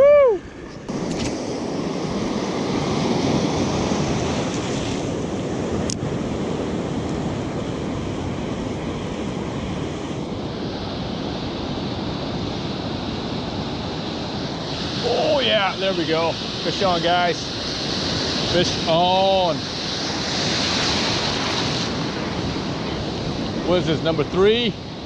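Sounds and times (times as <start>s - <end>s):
ocean surf washing: 0.0s - 25.0s
wind on microphone: 0.0s - 25.0s.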